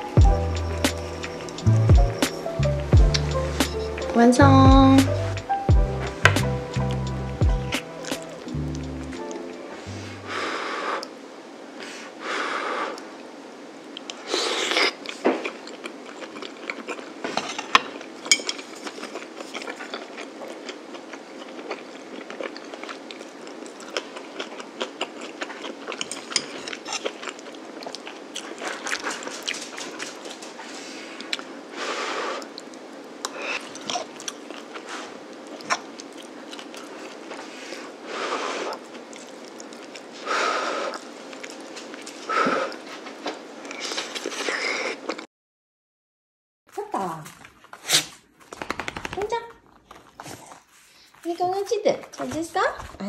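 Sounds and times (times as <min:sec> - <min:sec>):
chewing: 0:13.9 - 0:31.5, 0:32.3 - 0:45.3, 0:49.6 - 0:53.0.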